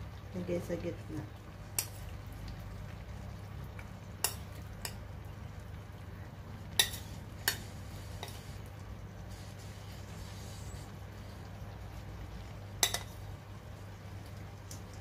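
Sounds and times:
metal spoon clinking on clay pot: 12.8s - 13.1s.

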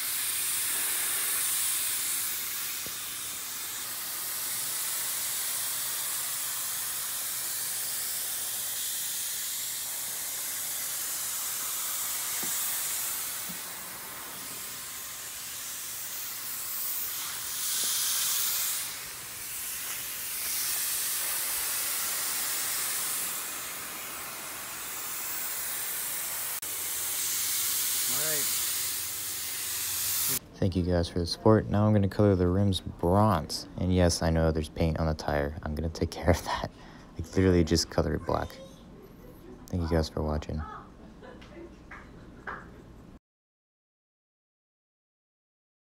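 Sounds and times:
paint sprayer hissing: 0.0s - 30.4s.

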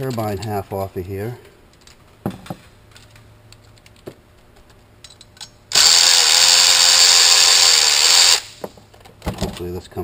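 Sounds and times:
tools clicking: 4.6s - 5.6s
cordless drill running: 5.7s - 8.6s.

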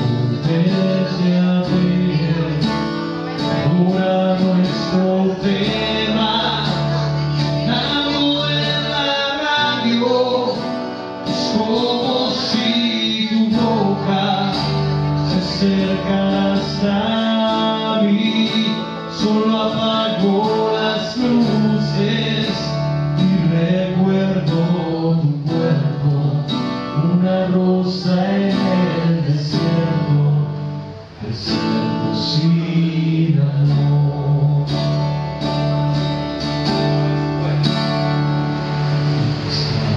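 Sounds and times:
man singing into a microphone: 0.0s - 35.8s
acoustic guitar strumming: 0.0s - 39.9s.

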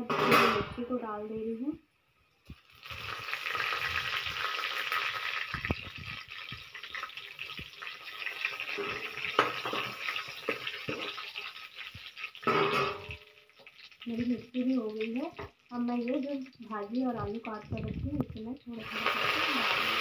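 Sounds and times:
chillies sizzling in hot oil: 2.4s - 20.0s
spoon scraping and clinking pan: 8.7s - 11.6s.

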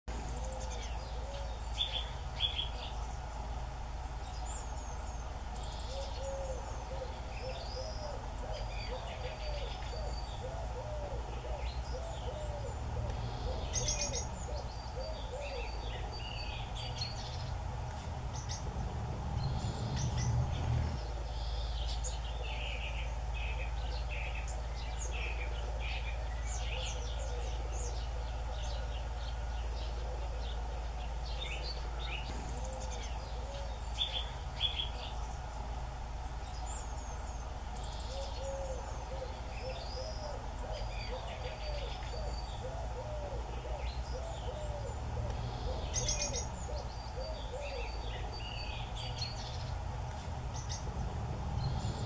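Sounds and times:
songbirds chirping: 0.0s - 52.0s
low hoot-like calls: 0.2s - 3.0s, 5.8s - 17.4s, 22.2s - 35.7s, 38.0s - 49.5s.

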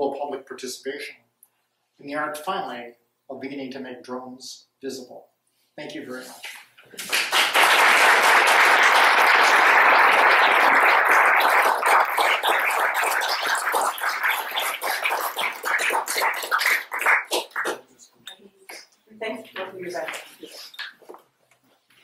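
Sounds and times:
audience applauding: 7.0s - 17.8s.

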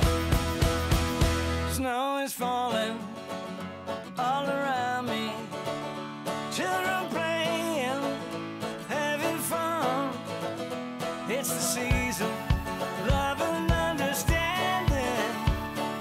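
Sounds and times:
bass-heavy music track: 0.0s - 1.8s, 11.8s - 16.0s
country song with singing: 0.0s - 16.0s.

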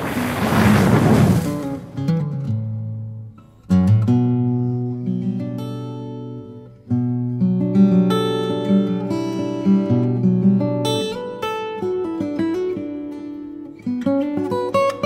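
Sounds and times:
rush of noise: 0.0s - 2.1s
acoustic guitar strummed chords: 1.5s - 15.0s.

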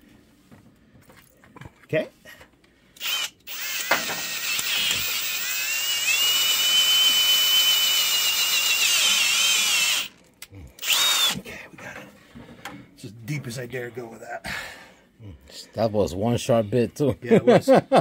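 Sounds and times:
cordless drill whining: 3.0s - 10.2s, 10.8s - 11.4s.

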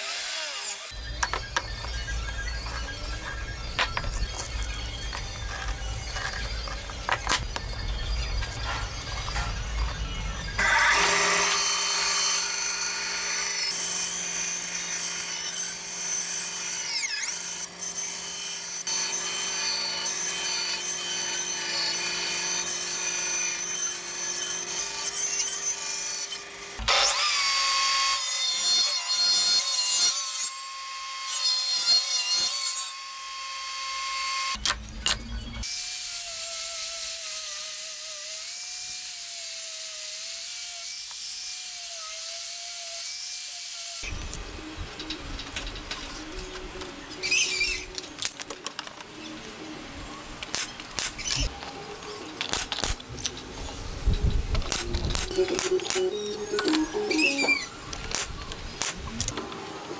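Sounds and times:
bandsaw cutting wood: 0.0s - 7.4s, 10.5s - 34.6s.

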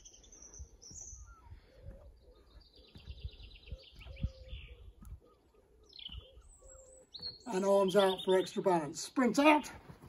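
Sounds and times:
bird trill: 0.0s - 8.9s
birds chirping faintly: 0.0s - 10.0s
soft low thumps: 0.6s - 5.2s.

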